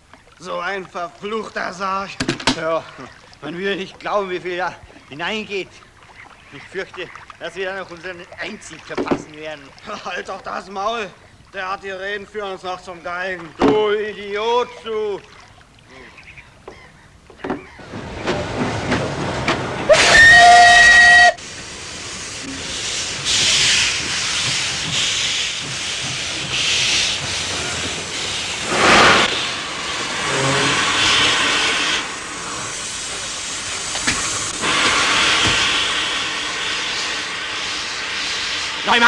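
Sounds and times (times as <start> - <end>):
locomotive steam hissing: 17.8 - 39.0
steam locomotive whistle blast: 19.8 - 21.5, 28.6 - 32.1.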